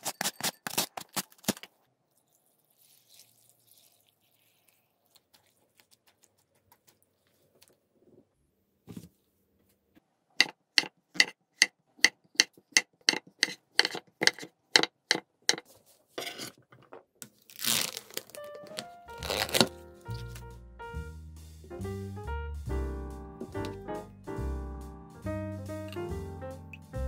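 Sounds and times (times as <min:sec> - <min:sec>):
tearing crinkling noise: 0:17.3 - 0:20.5
light piano music: 0:18.2 - 0:27.0.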